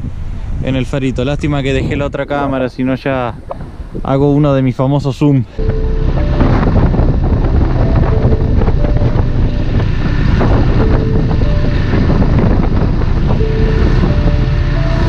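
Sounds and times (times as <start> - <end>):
wind buffeting microphone: 0.0 - 15.0
motorcycle engine running: 5.7 - 15.0.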